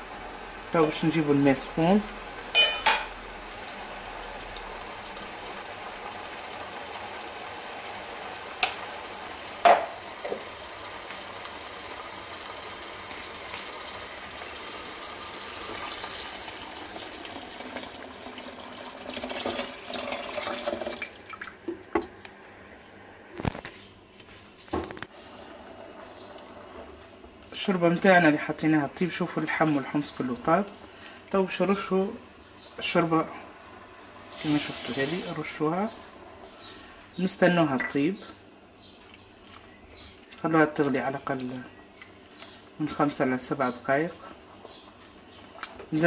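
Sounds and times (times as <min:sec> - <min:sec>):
water pouring into a pot: 0:10.6 - 0:21.6, 0:34.2 - 0:35.4.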